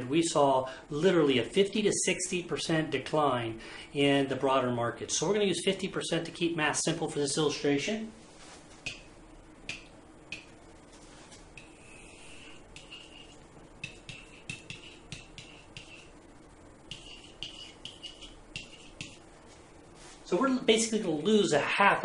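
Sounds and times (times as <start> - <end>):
pen squeaking on whiteboard: 11.6 - 16.2, 16.9 - 19.2
pen tapping on whiteboard: 13.8 - 16.0, 16.9 - 19.2.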